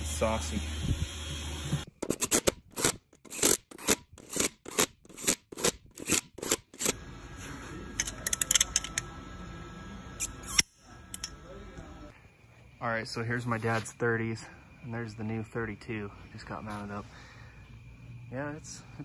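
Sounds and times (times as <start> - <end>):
steady low hum: 6.9 - 19.0
torque wrench clicks: 8.0 - 9.1, 10.2 - 11.4.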